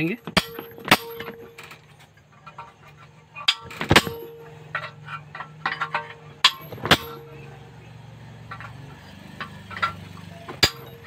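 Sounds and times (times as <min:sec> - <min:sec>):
hammer striking chisel on metal: 0:00.2 - 0:01.6, 0:03.4 - 0:07.5, 0:09.4 - 0:11.0.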